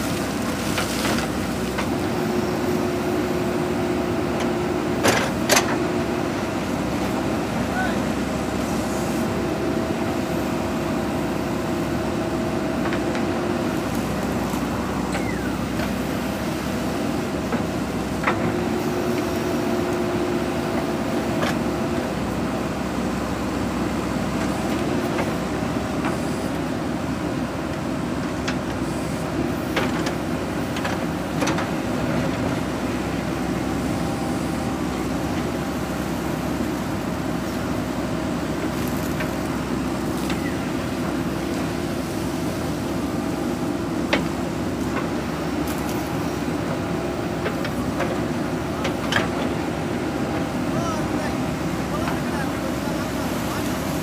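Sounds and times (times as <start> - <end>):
diesel engine under load: 0.0 - 54.0.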